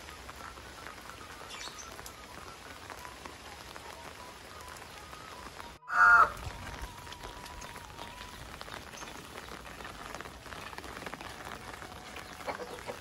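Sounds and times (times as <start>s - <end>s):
rain falling on foliage: 0.0s - 13.0s
loud pitched call: 5.8s - 6.4s.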